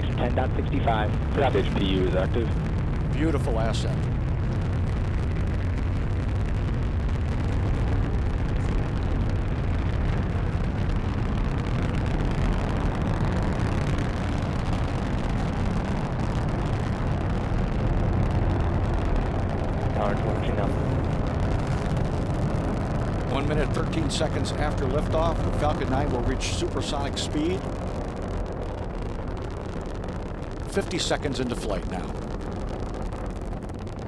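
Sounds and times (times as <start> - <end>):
rocket engines rumbling: 0.0 - 34.0.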